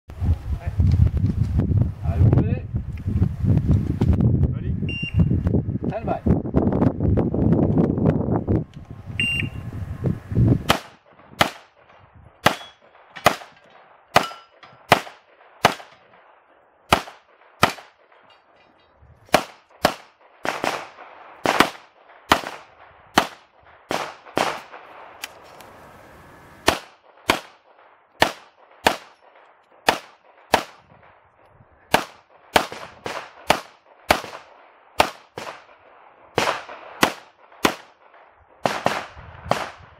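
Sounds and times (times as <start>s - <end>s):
pistol shots: 10.7s - 18.3s, 19.3s - 25.0s, 26.6s - 31.0s, 31.9s - 39.8s.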